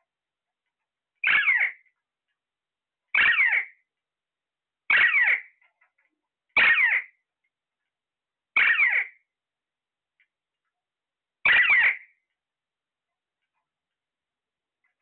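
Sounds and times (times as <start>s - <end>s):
parakeet calling: 1.2s - 1.9s, 3.1s - 3.8s, 4.9s - 5.6s, 6.6s - 7.2s, 8.6s - 9.2s, 11.4s - 12.2s.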